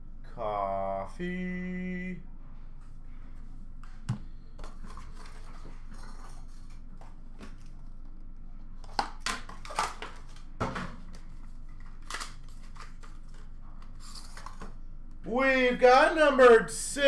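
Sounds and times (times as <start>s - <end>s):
low room hum: 0.0s - 17.0s
packaging crinkling and snapping: 8.8s - 10.4s.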